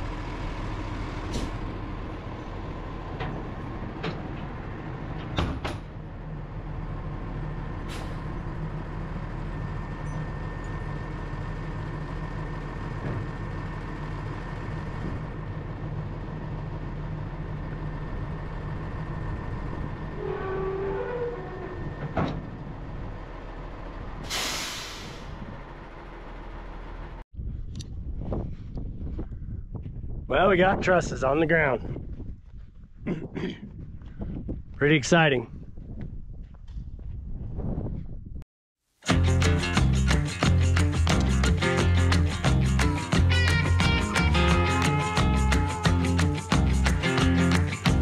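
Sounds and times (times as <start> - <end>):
diesel truck engine running: 0.0 - 27.2, 39.1 - 48.0
air-brake hiss: 24.2 - 25.4.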